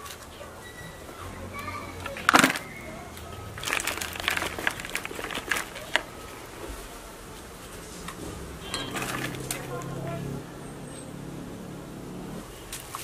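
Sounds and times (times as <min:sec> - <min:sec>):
soil dropping into plastic pot: 0:02.0 - 0:02.8, 0:03.6 - 0:06.1, 0:08.7 - 0:09.8.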